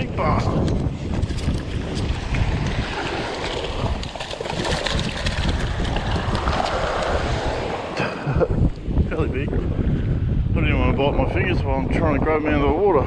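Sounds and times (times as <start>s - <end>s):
wind buffeting microphone: 0.0s - 13.0s
surf washing on beach: 1.0s - 9.2s.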